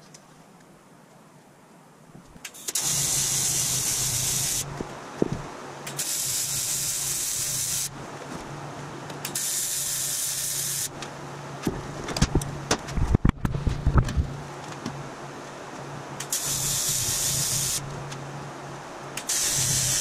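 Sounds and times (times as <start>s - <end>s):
welding arc crackling hiss: 2.4s - 8.0s, 9.2s - 11.0s, 16.2s - 17.9s, 19.2s - 20.0s
steady low buzz: 10.6s - 20.0s.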